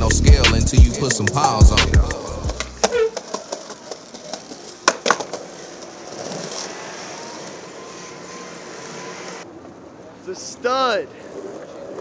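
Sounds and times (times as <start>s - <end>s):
skateboard wheels rolling on concrete: 0.0s - 12.0s
skateboard knocking on stone ledge: 2.8s - 5.5s.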